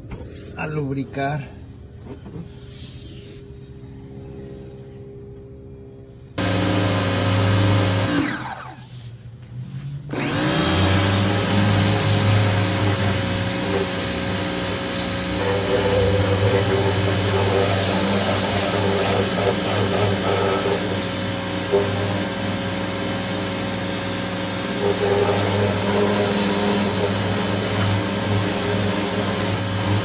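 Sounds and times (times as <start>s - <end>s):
pressure washer motor hum: 6.4s - 9.0s, 10.1s - 30.0s.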